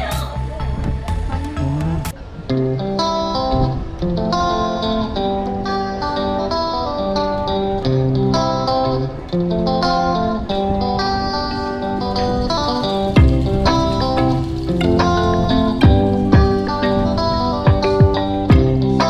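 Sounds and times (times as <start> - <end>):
acoustic guitar melody: 1.1 - 19.0.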